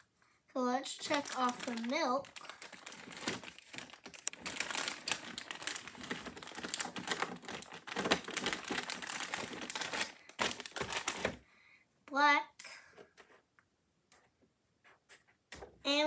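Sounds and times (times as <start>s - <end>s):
plastic bag crinkling: 0.9s - 11.4s.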